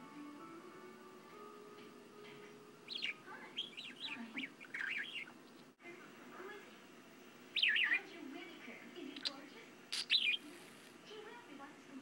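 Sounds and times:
budgerigar chirping: 0:02.8 - 0:05.7, 0:07.6 - 0:08.1, 0:09.1 - 0:10.4.

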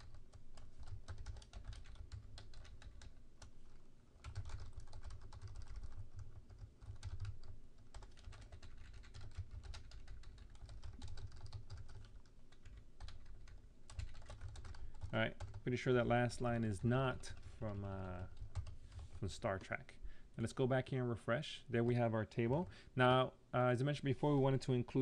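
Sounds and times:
fast keyboard typing: 0:00.0 - 0:15.7, 0:18.1 - 0:19.2.

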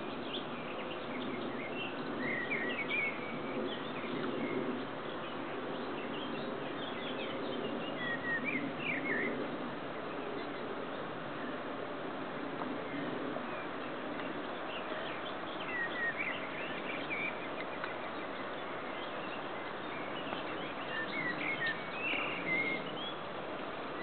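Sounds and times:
steady background hiss: 0:00.0 - 0:24.0
birds chirping: 0:12.7 - 0:24.0.

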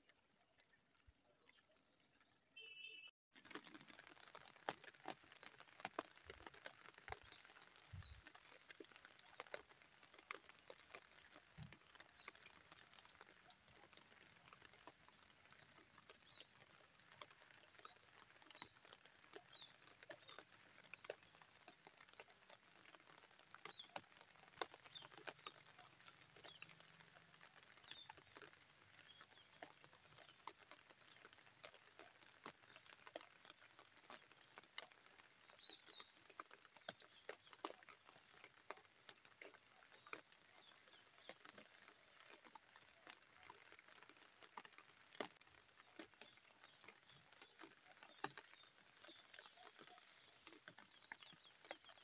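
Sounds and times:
light rain pattering: 0:00.0 - 0:52.0.

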